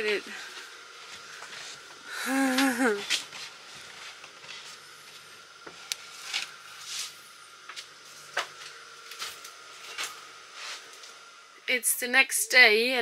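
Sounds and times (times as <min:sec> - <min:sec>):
soft rustling and scraping: 0:00.0 - 0:02.0, 0:03.0 - 0:11.1.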